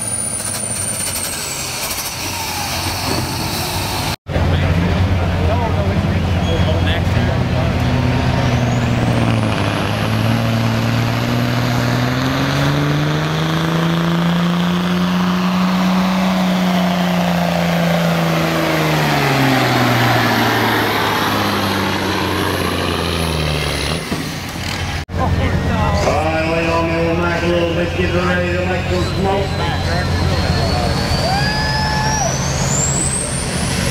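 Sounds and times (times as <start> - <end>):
diesel truck engine at full throttle: 0.0 - 33.9.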